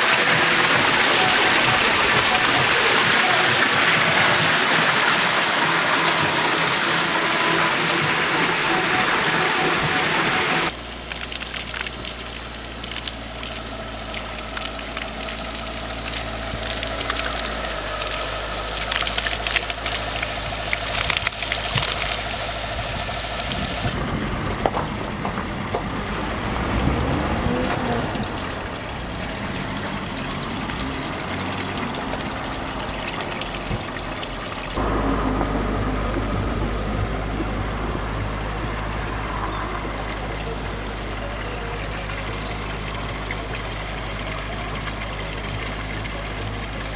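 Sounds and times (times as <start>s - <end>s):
water splashing into troughs: 0.0s - 46.9s
low rumble: 10.7s - 46.9s.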